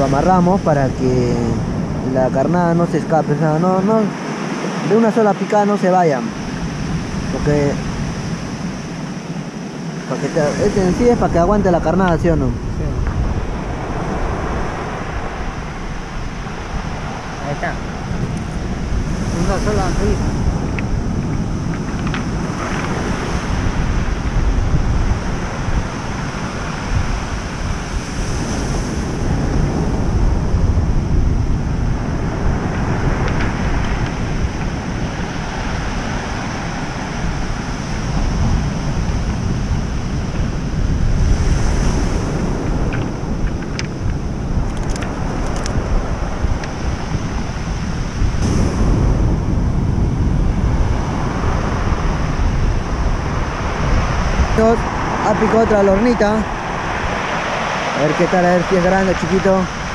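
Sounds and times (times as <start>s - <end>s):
wind buffeting microphone: 0.0s - 59.9s
surf breaking on pebble beach: 31.6s - 59.9s.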